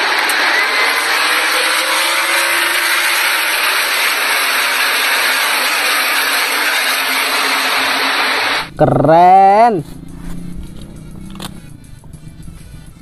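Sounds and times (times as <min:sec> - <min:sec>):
race cars passing at speed: 0:00.0 - 0:08.7, 0:09.8 - 0:13.0.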